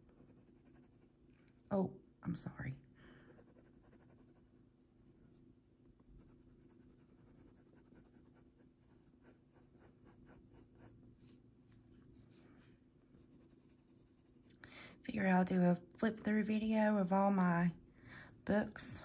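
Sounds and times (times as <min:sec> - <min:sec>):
coloured pencil scratching on paper: 0:00.0 - 0:01.2, 0:03.3 - 0:05.2, 0:06.1 - 0:15.1
low steady hum: 0:00.0 - 0:19.0.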